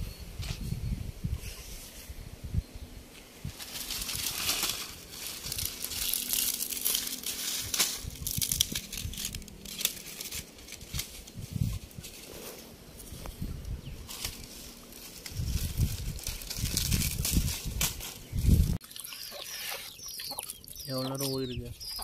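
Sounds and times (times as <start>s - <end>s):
dry palm fronds tearing and snapping: 3.5s - 12.5s, 14.0s - 18.8s.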